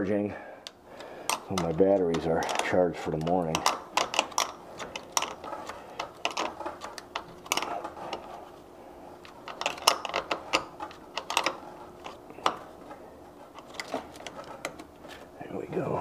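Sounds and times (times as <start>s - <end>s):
small metal hardware clicking: 0.6s - 8.2s, 9.2s - 12.6s.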